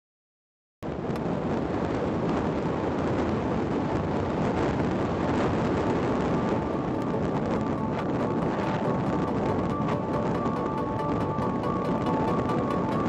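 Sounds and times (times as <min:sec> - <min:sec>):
faint steady whine: 0:00.9 - 0:13.0
rush of airflow: 0:00.9 - 0:13.0.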